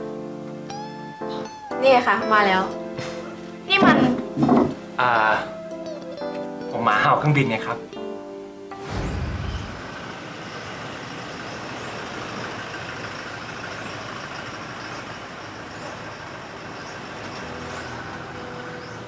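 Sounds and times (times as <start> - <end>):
short low rumble: 8.8 - 10.8
car engine and tyre noise: 8.8 - 19.0.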